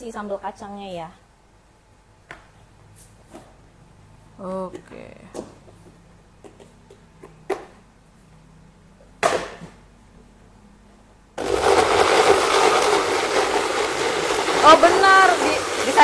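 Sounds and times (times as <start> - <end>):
blender grinding: 11.4 - 16.0.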